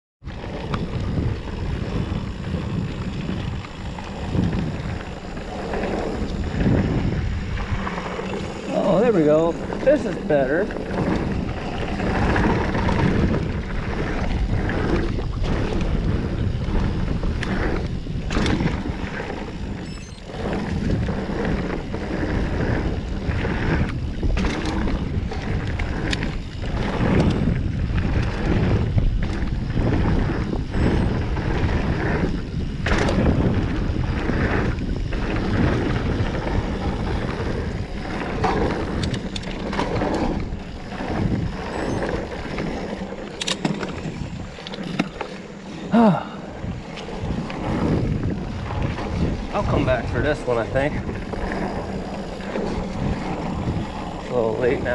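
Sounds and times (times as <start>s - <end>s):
bike tyres rumbling on dirt: 0.2s - 54.9s
wind buffeting microphone: 0.2s - 54.9s
sharp clicks and rattles: 22.7s - 45.6s.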